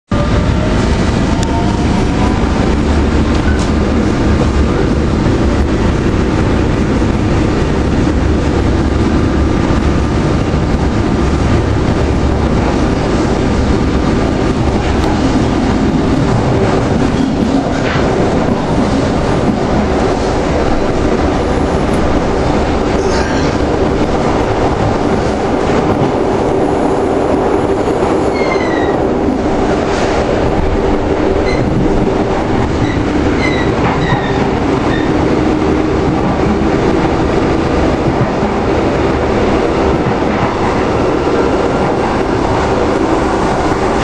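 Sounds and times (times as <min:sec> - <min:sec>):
train wheels rumbling on rail: 0:00.1 - 0:44.0.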